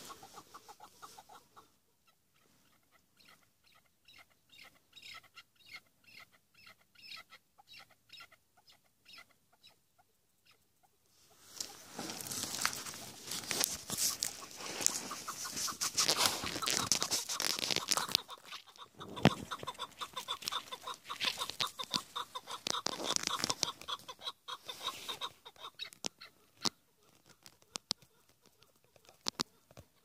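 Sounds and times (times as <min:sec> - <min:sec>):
partridge clucking calls: 0:00.0 - 0:30.0
branches rustling and crackling: 0:11.2 - 0:29.8.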